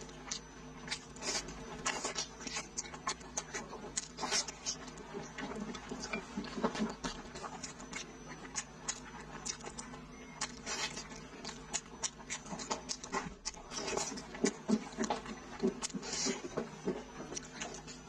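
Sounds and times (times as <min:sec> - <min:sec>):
wet chewing and lip smacking: 0:00.0 - 0:18.0.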